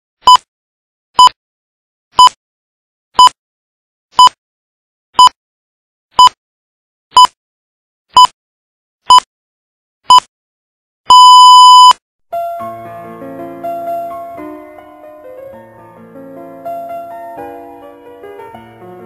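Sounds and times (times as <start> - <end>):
long electronic beep: 11.1 - 12.0.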